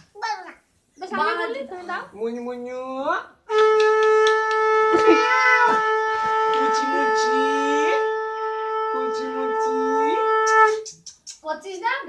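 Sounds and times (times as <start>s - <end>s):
conch shell blown: 3.5s - 10.8s.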